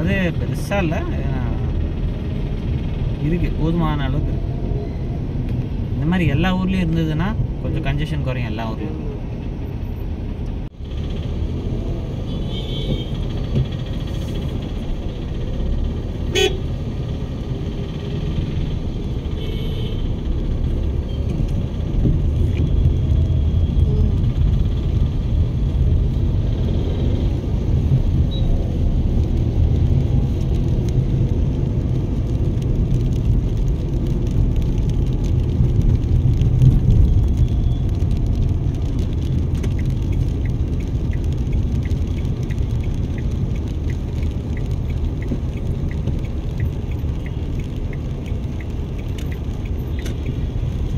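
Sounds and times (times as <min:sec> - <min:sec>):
vehicle rumbling in traffic: 0:00.0 - 0:50.9
car horns tooting: 0:16.3 - 0:16.6.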